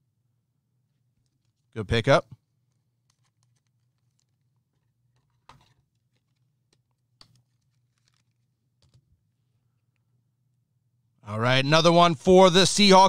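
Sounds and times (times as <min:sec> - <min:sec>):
trading cards rustling in hands: 0:01.1 - 0:01.7, 0:02.4 - 0:09.6.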